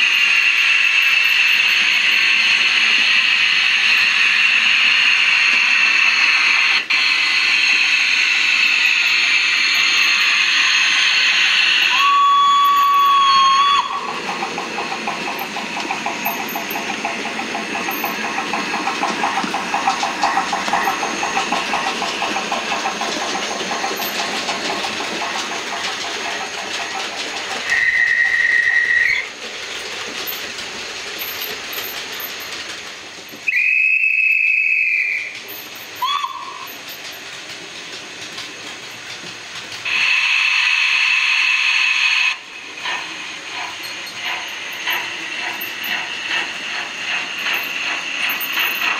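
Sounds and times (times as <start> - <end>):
steam hiss: 0.0 - 48.9
steam locomotive chuffing: 0.0 - 48.9
steam whistle blasts: 11.8 - 14.1, 27.7 - 29.2, 33.5 - 35.4, 36.0 - 36.6.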